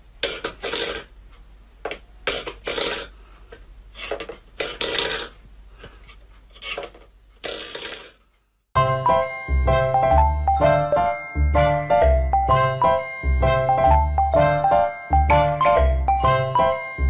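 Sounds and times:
metal bowl scraping wooden floor: 2.3 - 3.2, 3.9 - 5.4, 6.5 - 8.2.

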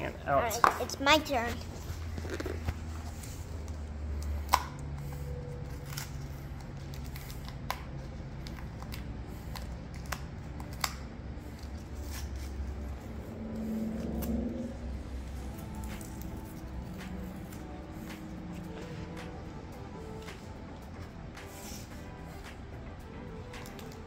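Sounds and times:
low steady rumble: 11.1 - 21.4.

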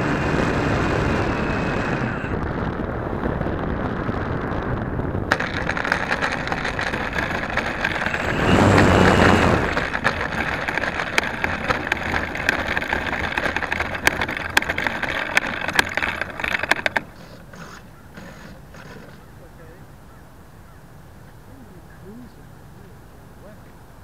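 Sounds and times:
electric motor whine: 0.0 - 19.4
model airplane rattling on dirt: 0.0 - 19.8.

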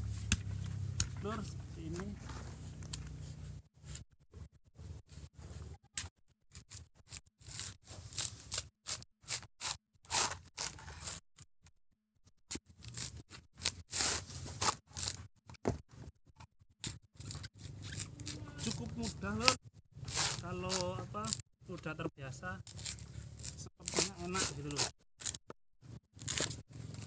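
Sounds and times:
coconut husk ripping: 7.4 - 11.2, 12.8 - 15.2, 17.2 - 21.4, 22.7 - 25.4, 26.2 - 27.0.

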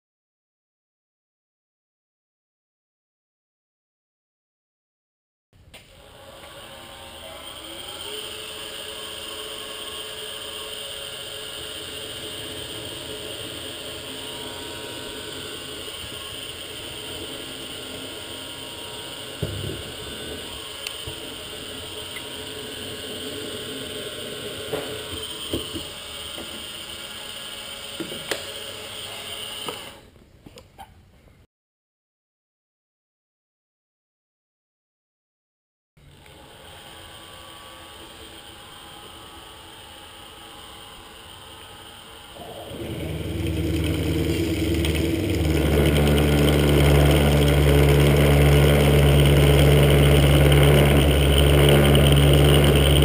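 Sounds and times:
milling machine spindle whirring: 6.0 - 30.0, 36.0 - 53.0
drill boring into steel: 6.0 - 30.1, 36.0 - 53.0.

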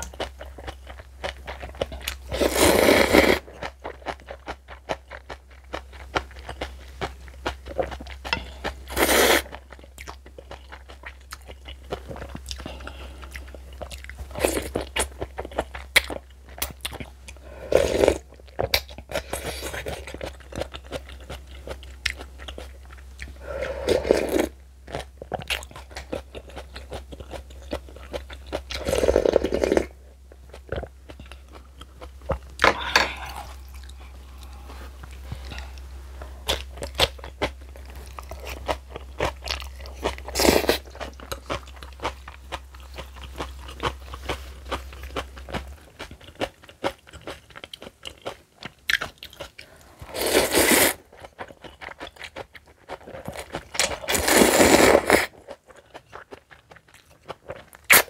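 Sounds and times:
chewing and crunching: 0.0 - 58.0.

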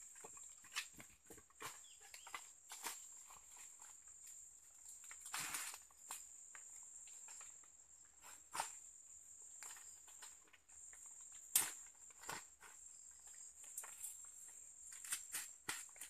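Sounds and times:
dry leaves and twigs snapping: 0.2 - 7.5, 11.3 - 14.3, 14.9 - 16.0.

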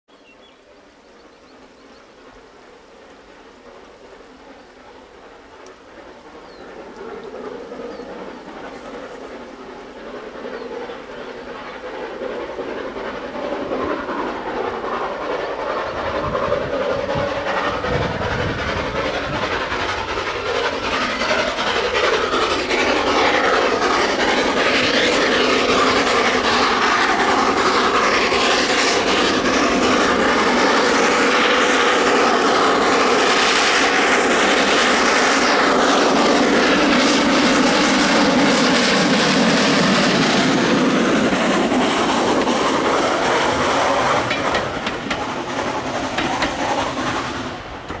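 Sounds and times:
steam locomotive chuffing: 0.2 - 48.0.

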